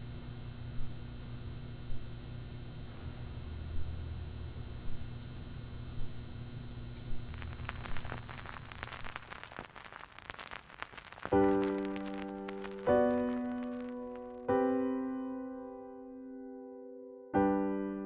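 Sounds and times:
turntable mains hum and rumble: 0:00.0 - 0:14.5
vinyl record surface crackle: 0:00.0 - 0:14.6.

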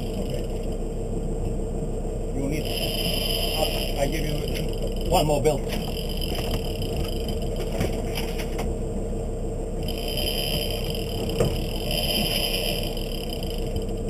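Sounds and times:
boat rumble and hum: 0:00.0 - 0:14.0
fishing reel clicks and scrapes: 0:02.6 - 0:07.5, 0:09.8 - 0:13.9.

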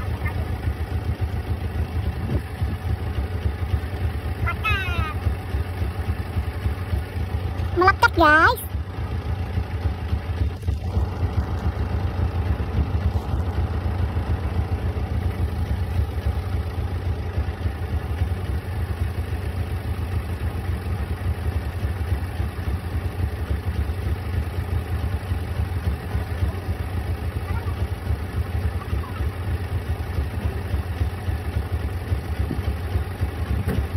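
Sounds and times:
truck engine idling: 0:00.0 - 0:33.9.

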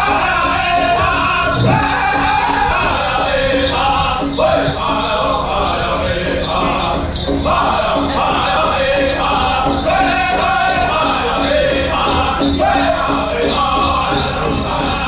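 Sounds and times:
big hand drum: 0:00.0 - 0:09.0
group singing in chorus: 0:00.0 - 0:15.0.

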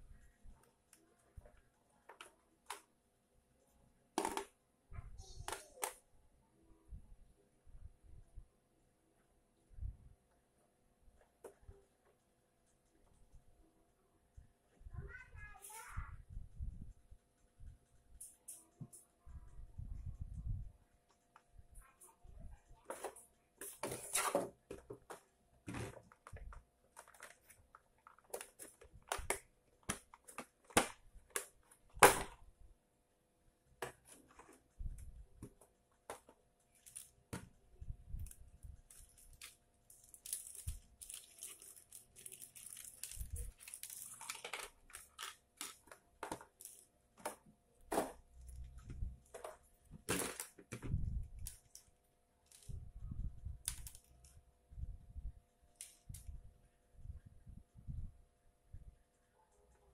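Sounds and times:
plastic parts knocking on table: 0:04.2 - 0:04.6
plastic packaging crinkling: 0:38.9 - 0:46.8.

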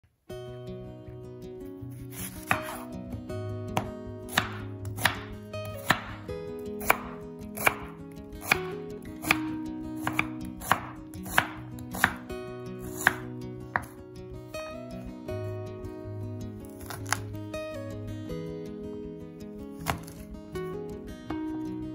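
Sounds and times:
soft background music: 0:00.3 - 0:21.9
knife cutting on board: 0:02.0 - 0:02.9, 0:03.8 - 0:06.2, 0:06.8 - 0:09.4, 0:10.0 - 0:12.2, 0:12.8 - 0:14.0, 0:16.7 - 0:17.3, 0:19.8 - 0:20.2.

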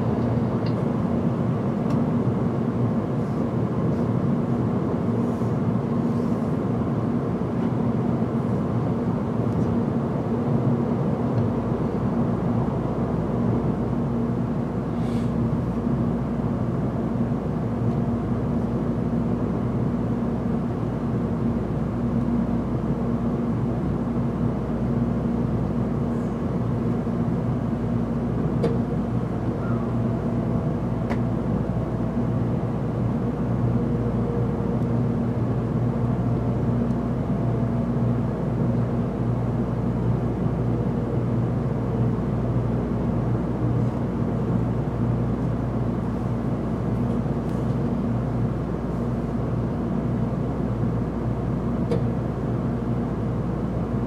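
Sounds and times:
constant low hum: 0:00.0 - 0:54.0.

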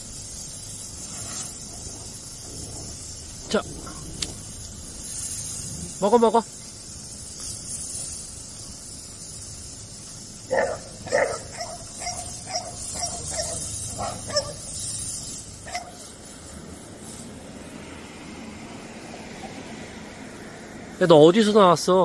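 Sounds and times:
dog giving high calls: 0:10.5 - 0:14.6.

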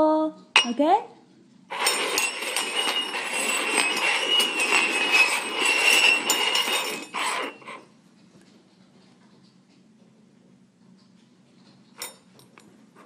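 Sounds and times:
jingle bell ringing: 0:01.7 - 0:07.8
metal cups scraping on wooden floor: 0:01.7 - 0:07.9.

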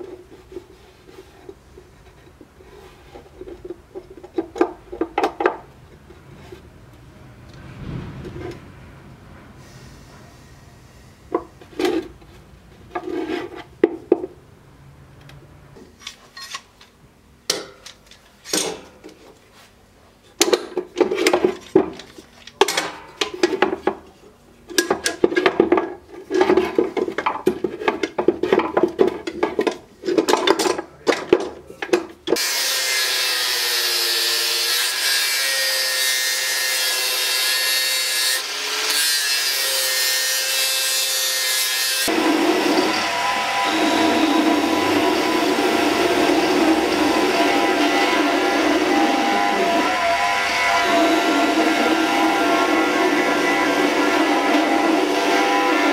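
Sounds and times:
hand tool scraping wood: 0:00.0 - 0:06.6, 0:11.4 - 0:14.0, 0:23.4 - 0:33.1
angle grinder sanding wood: 0:32.4 - 0:55.9.

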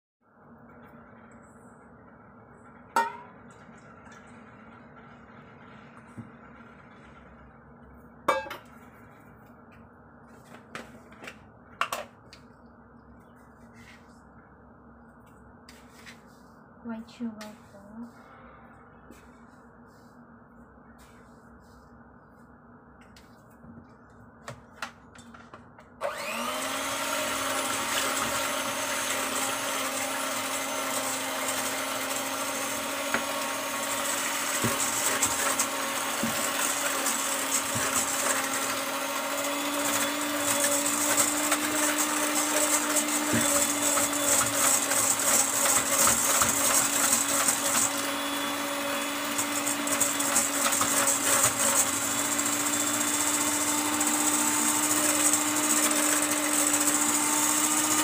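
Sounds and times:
electric hand mixer running: 0:26.0 - 0:58.0.

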